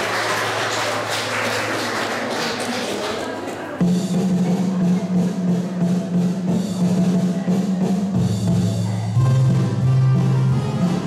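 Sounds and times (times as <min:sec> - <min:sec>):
hand drum: 0:03.8 - 0:11.0
piano accordion: 0:09.2 - 0:11.0.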